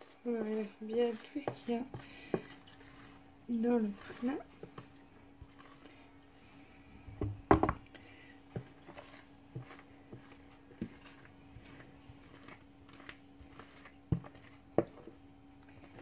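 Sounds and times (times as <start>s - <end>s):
spoon scraping batter from bowl: 0.0s - 6.1s, 8.6s - 15.1s
low hum: 0.0s - 16.0s.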